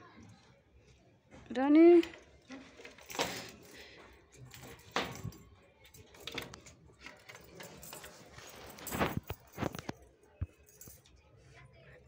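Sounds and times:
keys and chain clinking: 2.1 - 11.2.

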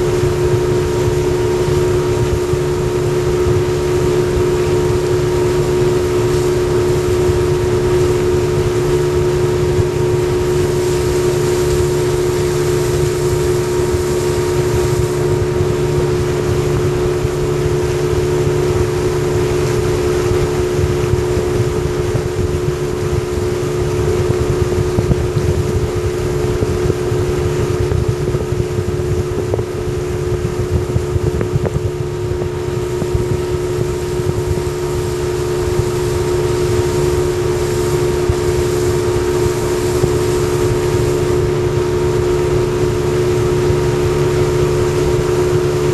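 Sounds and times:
outboard motor running: 0.0 - 45.9.

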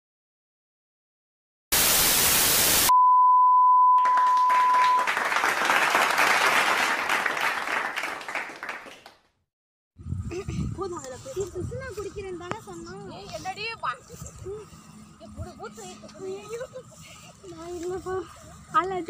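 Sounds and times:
loud static hiss: 1.7 - 2.9
dense crackling noise: 1.8 - 2.9
steady high beep: 2.8 - 5.1.

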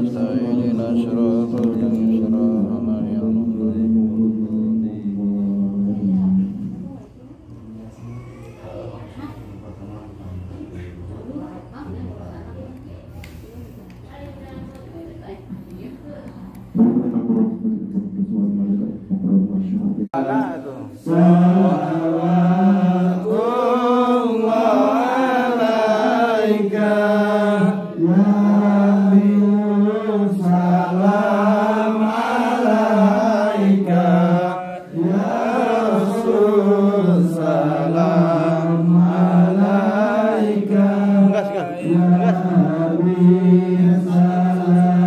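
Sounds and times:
men chanting devotional praise: 0.0 - 6.6, 20.1 - 45.0.

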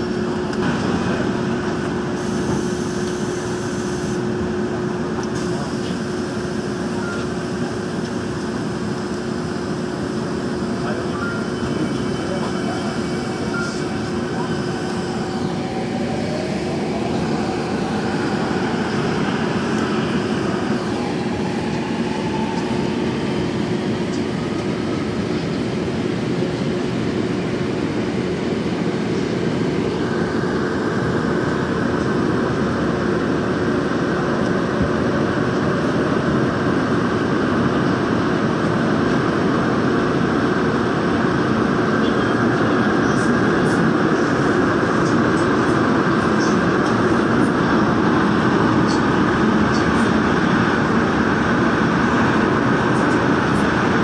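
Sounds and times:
train motor whine: 0.0 - 25.2
train wheels rumbling in tunnel: 0.0 - 54.0.

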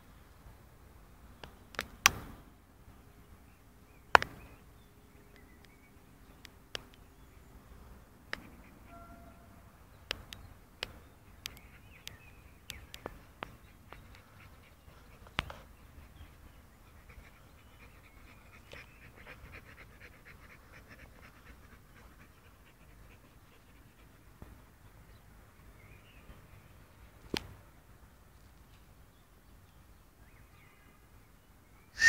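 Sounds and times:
dog panting: 13.6 - 24.4.

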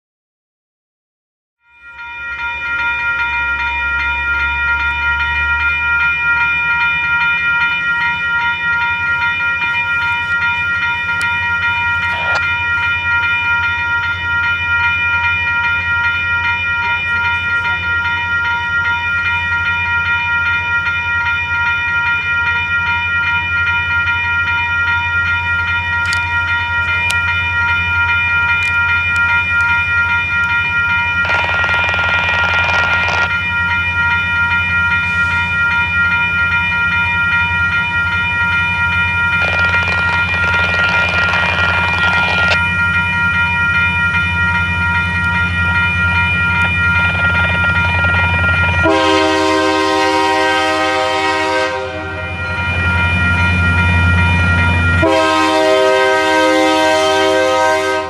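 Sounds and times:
locomotive engine rumble: 2.2 - 58.0
train horn chord: 48.8 - 52.4, 55.0 - 58.0.

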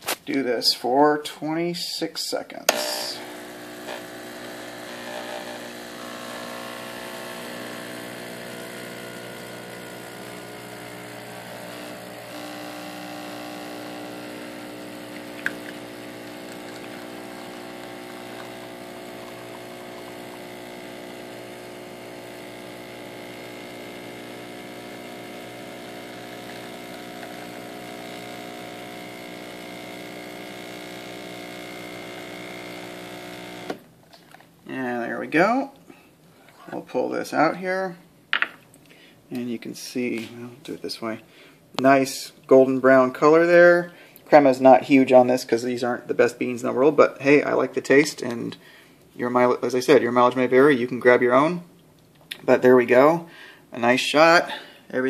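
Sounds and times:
espresso machine pump humming: 2.7 - 33.8.

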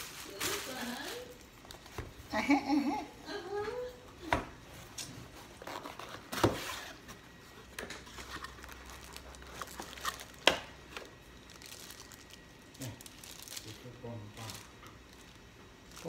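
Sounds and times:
plastic bag crinkling: 0.0 - 1.8, 8.0 - 16.0.

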